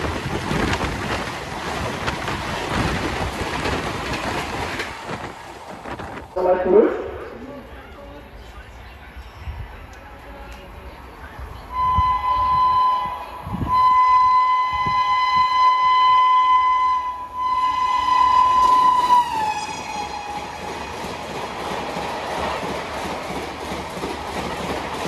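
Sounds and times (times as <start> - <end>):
train wheel clatter: 0.0 - 6.4, 17.4 - 25.0
passing train rush: 0.0 - 25.0
train horn blasts: 11.7 - 20.4.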